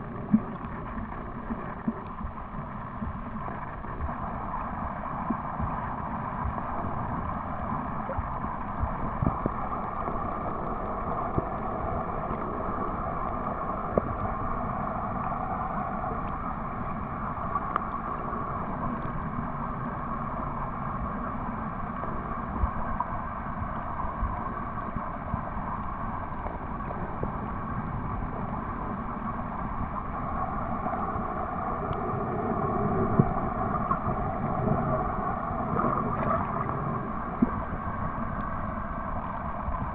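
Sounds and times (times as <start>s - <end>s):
low underwater rumble: 0.0s - 39.9s
steady hum: 0.0s - 39.9s
faint clicks: 0.1s - 2.2s, 7.2s - 12.4s, 17.4s - 18.0s.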